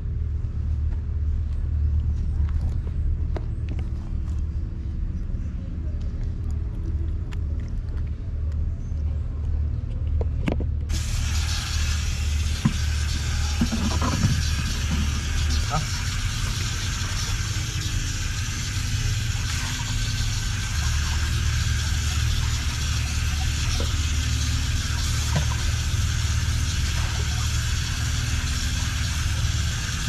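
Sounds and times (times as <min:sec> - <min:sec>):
steady low rumble: 0:00.0 - 0:30.0
water splashing into a bowl: 0:10.9 - 0:30.0.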